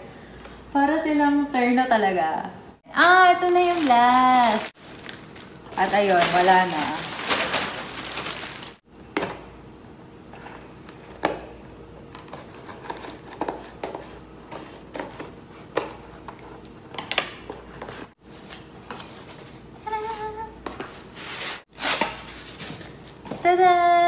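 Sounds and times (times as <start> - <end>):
cardboard and plastic rustling: 3.0 - 8.8.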